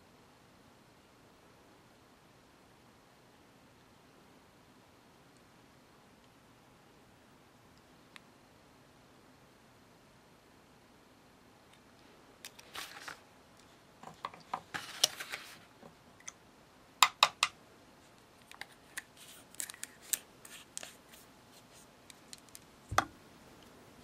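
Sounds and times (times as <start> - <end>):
craft tools clicking and tapping: 17.0 - 17.6.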